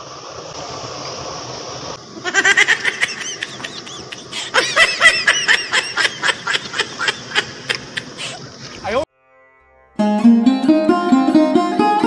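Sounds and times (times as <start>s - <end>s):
high-pitched giggling laughter: 2.2s - 8.4s.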